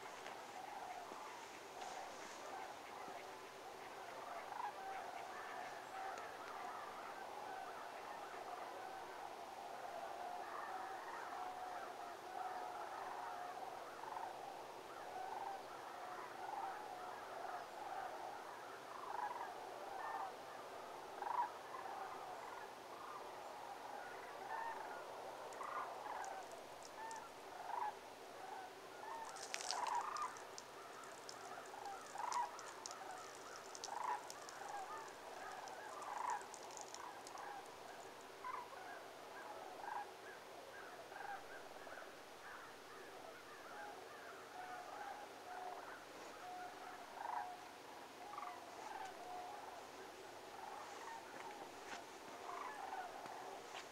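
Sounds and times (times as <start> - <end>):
cranes calling: 0.0 - 9.0, 23.9 - 40.1, 43.4 - 53.9.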